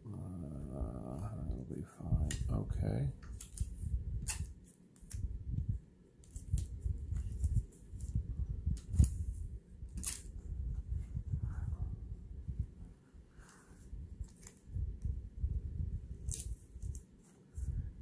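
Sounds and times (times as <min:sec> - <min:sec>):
low rumble of handling: 0:00.0 - 0:18.0
adhesive tape pulled and torn: 0:03.3 - 0:05.3, 0:06.2 - 0:08.1, 0:08.8 - 0:10.3, 0:16.2 - 0:17.1.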